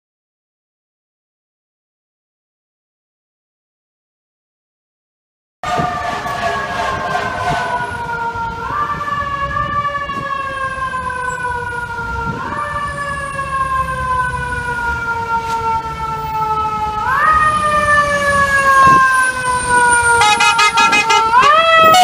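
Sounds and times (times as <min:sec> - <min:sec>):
fire engine siren wailing: 0:05.6 - 0:22.0
low traffic rumble: 0:05.6 - 0:22.0.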